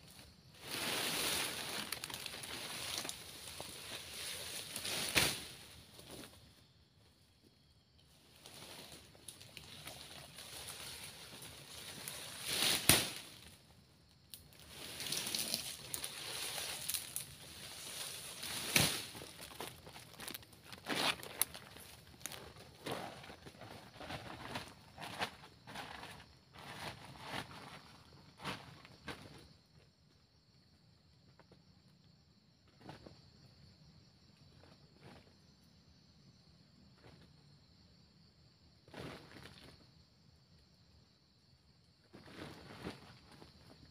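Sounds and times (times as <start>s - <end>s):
fronds and undergrowth rustling: 0.0s - 6.6s, 8.1s - 29.4s.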